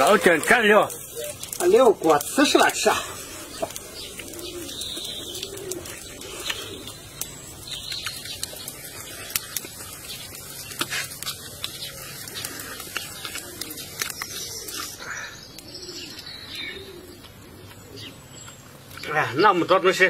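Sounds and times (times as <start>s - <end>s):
dove cooing: 0.0s - 18.8s
chewing sounds: 2.9s - 15.0s.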